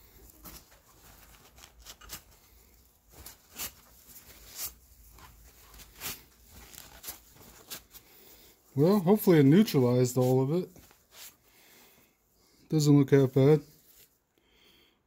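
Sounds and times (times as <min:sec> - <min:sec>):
paper towel crinkling and rubbing: 0:00.0 - 0:11.4
paper towel swishes: 0:00.2 - 0:08.0, 0:08.7 - 0:11.4.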